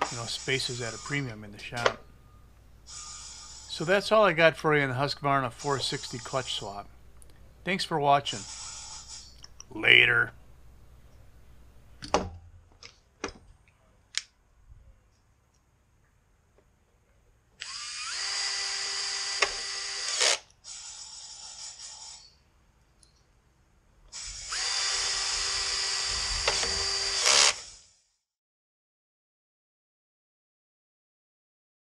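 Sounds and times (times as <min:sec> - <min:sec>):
power tool motor whining: 0:00.0 - 0:01.4, 0:02.9 - 0:04.0, 0:08.3 - 0:09.4, 0:17.6 - 0:22.4, 0:24.1 - 0:28.0
tools clicking: 0:22.2 - 0:23.3.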